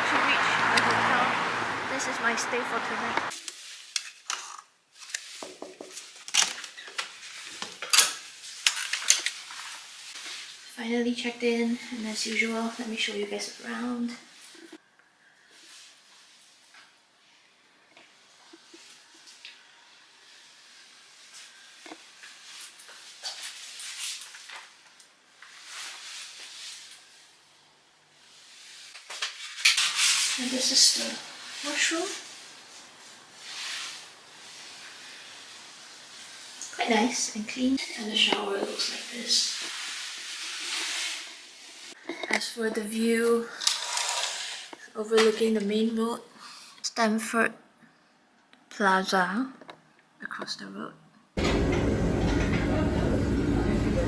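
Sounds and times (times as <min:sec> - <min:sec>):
clothing and paper rustling: 0:02.5 - 0:14.8, 0:20.4 - 0:27.2, 0:28.4 - 0:44.5.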